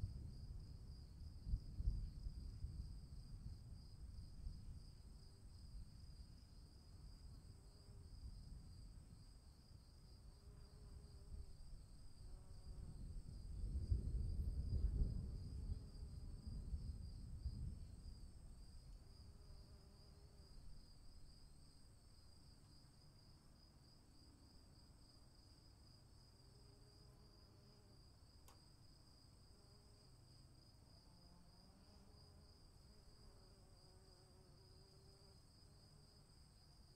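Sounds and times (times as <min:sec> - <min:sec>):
low rumble of thunder: 0:00.0 - 0:05.0, 0:12.8 - 0:18.8.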